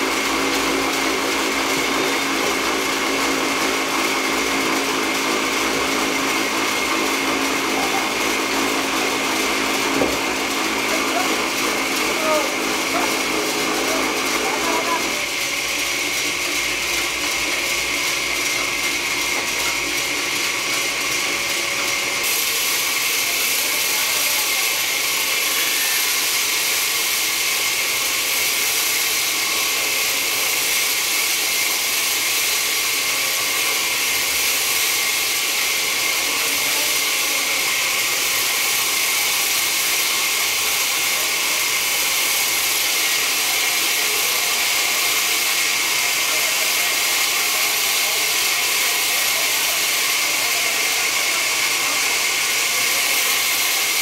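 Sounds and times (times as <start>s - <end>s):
band saw blade cutting log: 0.0s - 54.0s.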